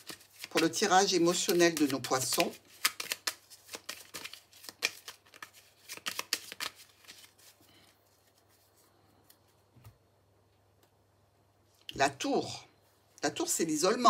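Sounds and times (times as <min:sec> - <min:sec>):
cards being shuffled: 0:00.0 - 0:10.0.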